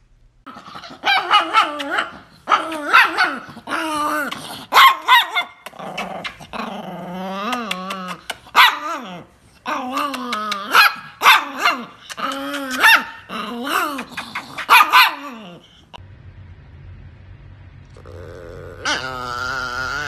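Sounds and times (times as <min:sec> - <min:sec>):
small dog barking: 0:00.5 - 0:03.5, 0:04.7 - 0:05.7, 0:08.5 - 0:09.0, 0:10.6 - 0:12.0, 0:12.7 - 0:13.3, 0:14.0 - 0:15.6
small dog growling: 0:00.5 - 0:04.8, 0:05.6 - 0:10.8, 0:11.6 - 0:15.9, 0:17.9 - 0:20.0.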